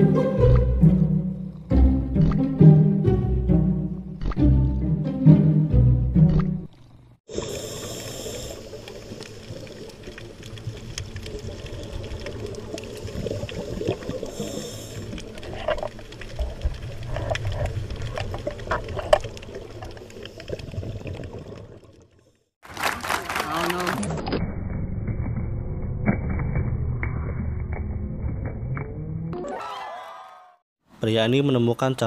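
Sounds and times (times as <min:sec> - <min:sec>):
underwater watery rush: 0:07.3 - 0:22.3
sharp underwater clicks and crackles: 0:07.9 - 0:24.3.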